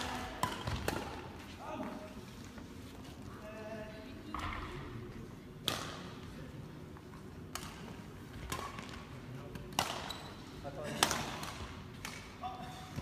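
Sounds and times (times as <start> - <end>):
racket hitting shuttlecock: 0.0 - 1.3, 5.6 - 6.1, 9.7 - 10.1, 11.0 - 12.4.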